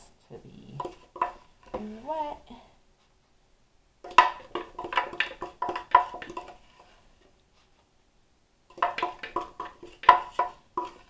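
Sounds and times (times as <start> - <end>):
knocking on plastic blender jar: 4.1 - 6.5, 8.8 - 11.0.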